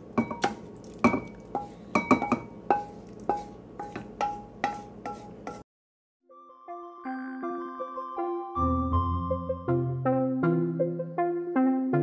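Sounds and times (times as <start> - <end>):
wooden spatula knocking on wok: 0.2 - 5.6.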